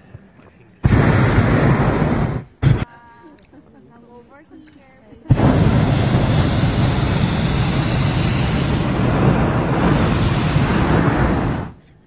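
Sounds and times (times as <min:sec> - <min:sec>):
propane burner roaring: 0:00.8 - 0:02.9, 0:05.3 - 0:11.8.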